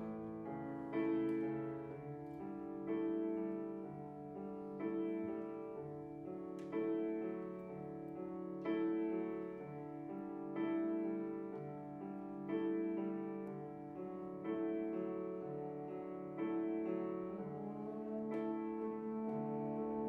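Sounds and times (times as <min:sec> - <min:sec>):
piano jazz chords: 0:00.0 - 0:20.0
trombone: 0:17.5 - 0:20.0.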